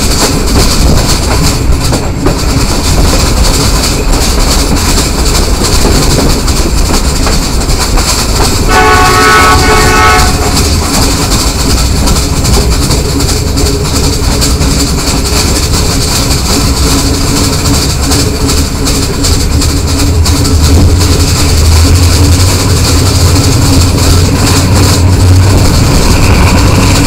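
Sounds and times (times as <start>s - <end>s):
train wheels rumbling on rail: 0.0s - 27.0s
wind noise: 0.0s - 27.0s
train horn blast: 8.6s - 11.2s.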